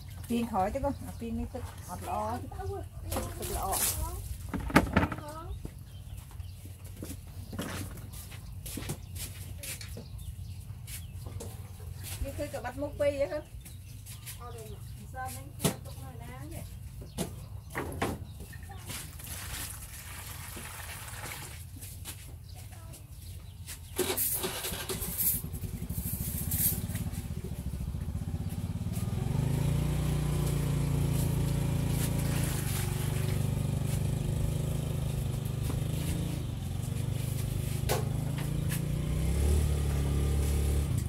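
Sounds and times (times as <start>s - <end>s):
small engine running: 24.0s - 41.0s.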